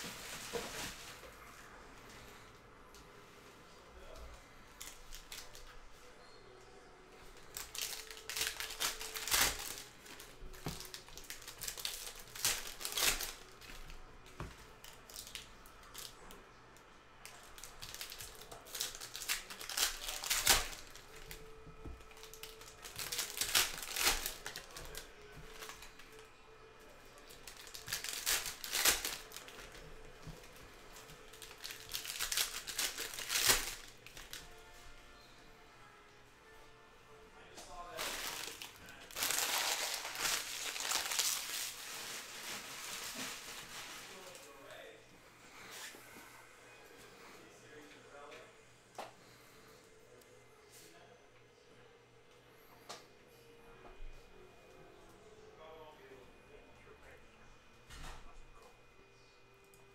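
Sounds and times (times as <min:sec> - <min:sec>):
foil wrappers crinkling and tearing: 0:00.0 - 0:01.4, 0:04.7 - 0:05.8, 0:07.2 - 0:16.3, 0:17.2 - 0:34.7, 0:37.8 - 0:44.9.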